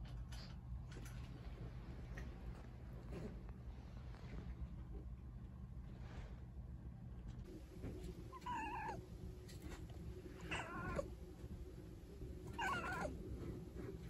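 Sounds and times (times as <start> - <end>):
cat meowing: 8.3 - 9.0, 10.4 - 11.1, 12.5 - 13.2.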